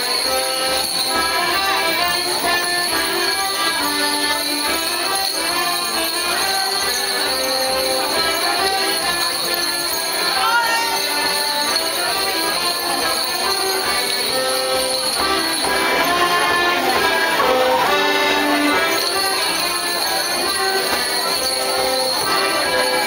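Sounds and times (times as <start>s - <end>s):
folk dance tune: 0.0s - 23.0s
leg bells jingling: 0.0s - 23.0s.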